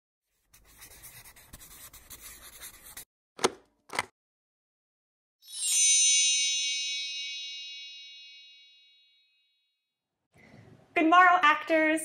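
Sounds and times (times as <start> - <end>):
pen scratching on paper: 0.3 - 3.1
bright chime: 5.4 - 9.6.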